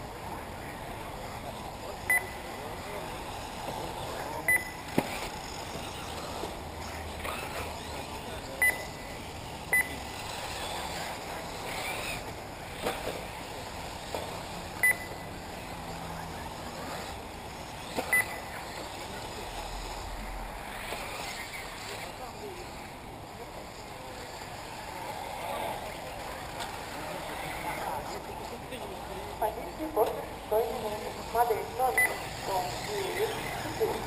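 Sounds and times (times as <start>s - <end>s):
outdoor background noise: 0.0s - 34.0s
short high electronic beeps: 2.1s - 2.4s, 4.5s - 4.8s, 8.6s - 9.0s, 9.7s - 10.0s, 14.8s - 15.2s, 18.1s - 18.4s.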